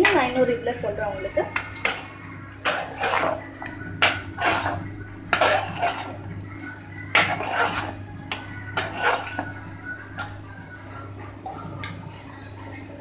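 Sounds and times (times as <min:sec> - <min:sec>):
steady low hum: 0:00.0 - 0:13.0
metal ladle scraping a pot: 0:01.6 - 0:06.5, 0:07.1 - 0:10.4.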